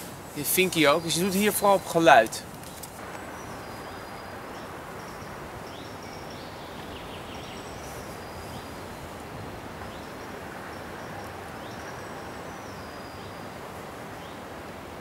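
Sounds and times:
songbirds singing faintly: 0.0 - 15.0.

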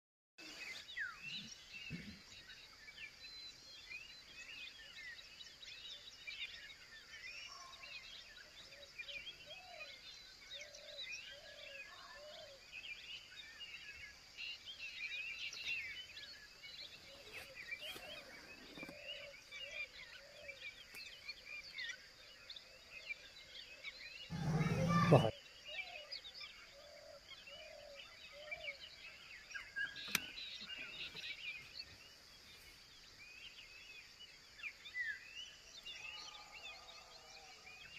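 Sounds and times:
small birds chirping: 0.4 - 37.9
lower bird calls: 24.3 - 32.7.

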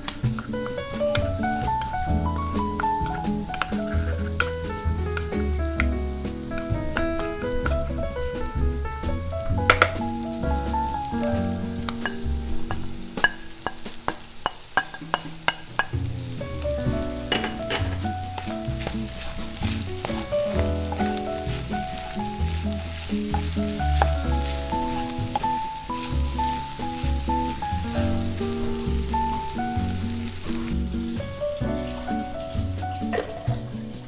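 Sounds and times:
spatula tapping on pan: 0.0 - 7.9, 9.1 - 10.2, 11.8 - 16.0, 17.3 - 22.3, 23.0 - 25.7
background music with bass line: 0.0 - 13.2, 15.2 - 34.0
food sizzling in a frying pan: 0.0 - 34.0.

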